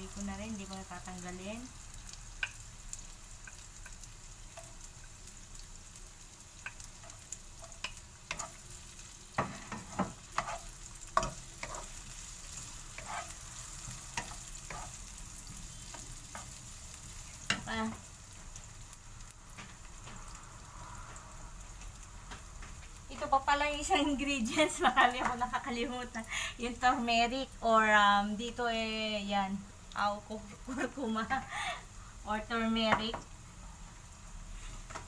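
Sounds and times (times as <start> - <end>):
food sizzling in a frying pan: 0.0 - 35.0
wooden spatula scraping pan: 9.4 - 12.0, 12.9 - 13.4.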